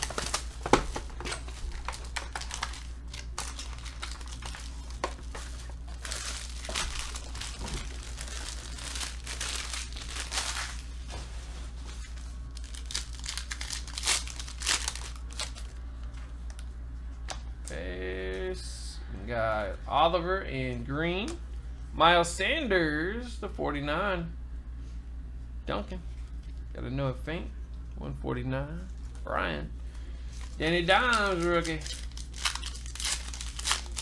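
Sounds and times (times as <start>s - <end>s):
foil wrapper crinkling and tearing: 0.0s - 11.0s, 12.0s - 15.8s, 30.4s - 34.0s.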